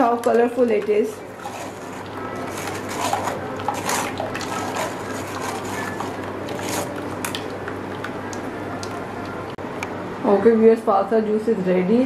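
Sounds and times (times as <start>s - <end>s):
juice trickling into bowl: 1.2s - 9.6s
spoon pressing wet pulp: 1.3s - 9.0s
spoon scraping on mesh: 1.4s - 7.1s.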